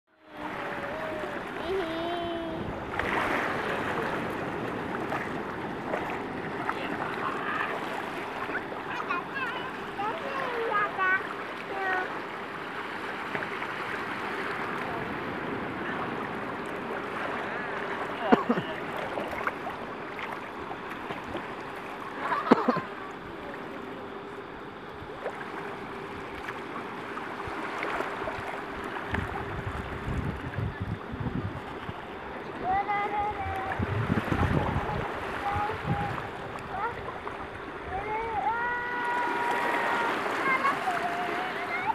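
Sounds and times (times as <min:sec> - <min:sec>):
faint steady hum: 0:00.1 - 0:41.9
sea water rushing over sand: 0:00.1 - 0:41.9
surf washing around legs: 0:00.2 - 0:41.9
small water splashes: 0:02.9 - 0:15.2, 0:16.0 - 0:37.9
wind rumble on microphone: 0:27.4 - 0:38.5.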